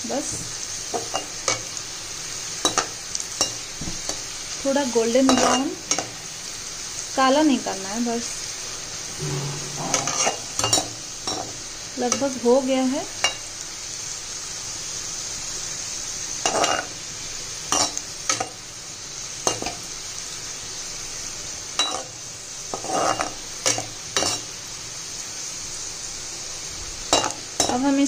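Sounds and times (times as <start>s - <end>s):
onions sizzling in oil: 0.0s - 28.0s
metal spatula scraping pan: 9.2s - 12.4s, 22.8s - 23.4s.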